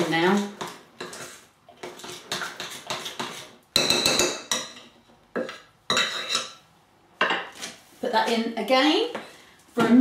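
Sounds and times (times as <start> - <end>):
spoon scraping chocolate in bowl: 0.0 - 4.8.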